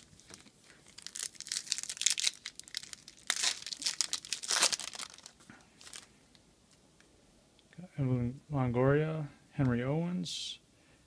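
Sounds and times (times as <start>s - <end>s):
foil wrapper crinkling and tearing: 0.0s - 6.1s.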